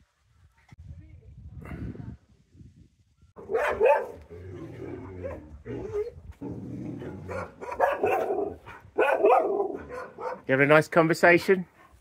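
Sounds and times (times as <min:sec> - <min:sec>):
dogs barking and yelping: 0:03.4 - 0:06.2, 0:06.8 - 0:10.5.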